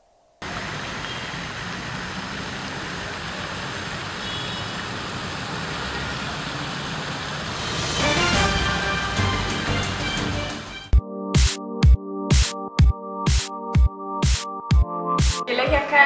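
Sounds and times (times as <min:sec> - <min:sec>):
city traffic rumble: 0:00.4 - 0:10.9
music with sharp percussive hits: 0:07.6 - 0:15.4.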